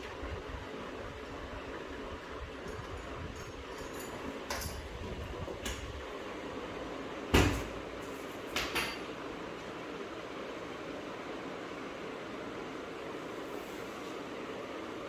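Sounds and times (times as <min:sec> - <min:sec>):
metal knocks on washing machine: 0:07.3 - 0:07.8.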